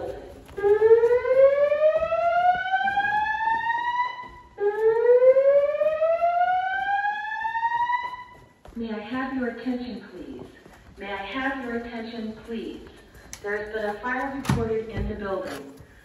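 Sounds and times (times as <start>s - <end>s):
fire alarm whoop tone: 0.0s - 8.5s.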